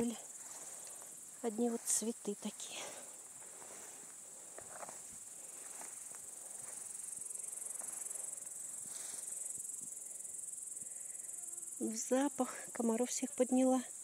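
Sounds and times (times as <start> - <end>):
faint rustles: 0.0 - 11.8
grasshoppers chirring: 0.0 - 14.0.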